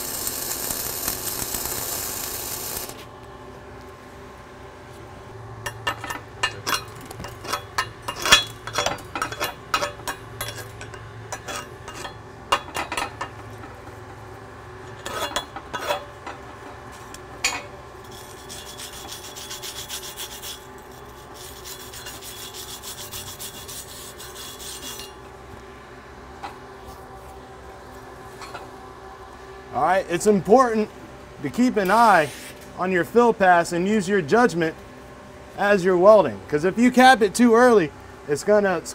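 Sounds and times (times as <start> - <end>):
metal scraping on metal: 5.7 - 13.8, 14.9 - 16.4, 17.5 - 25.2
fast steady brushing: 18.1 - 25.1.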